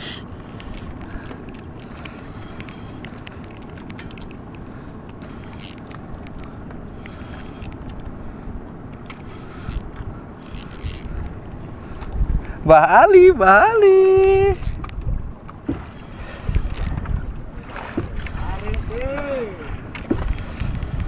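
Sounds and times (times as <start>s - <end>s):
rushing wind: 0.0s - 21.0s
sea noise: 0.0s - 21.0s
fishing tackle clicks and taps: 0.5s - 8.1s, 8.9s - 12.2s, 14.0s - 15.2s, 16.0s - 17.2s, 18.0s - 21.0s.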